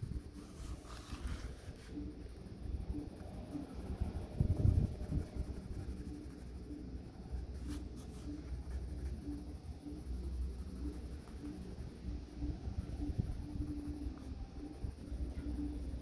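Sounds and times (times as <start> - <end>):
pencil scratching on paper: 0.0 - 2.0, 4.2 - 12.0.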